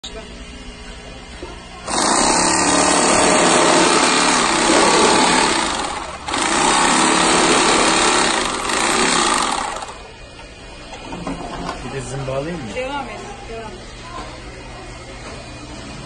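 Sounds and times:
industrial sewing machine running: 0:01.8 - 0:10.1.

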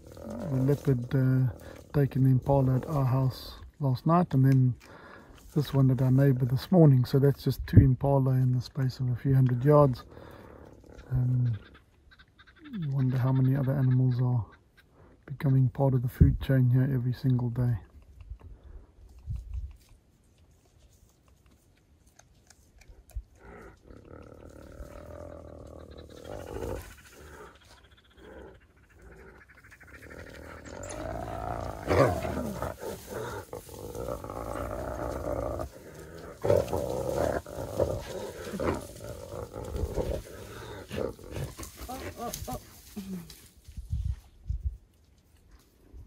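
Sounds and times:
hyena and wild dogs calling: 0:10.1 - 0:15.2, 0:23.0 - 0:43.4.

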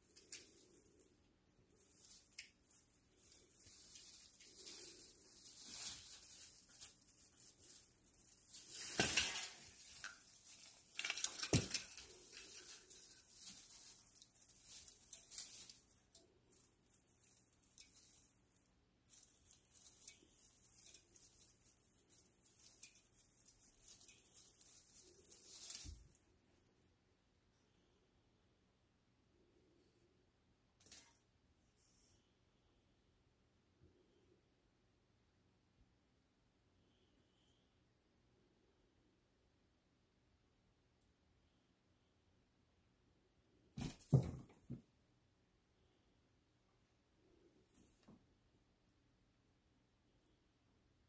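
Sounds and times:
tree branches rustling and crackling: 0:00.0 - 0:26.2.

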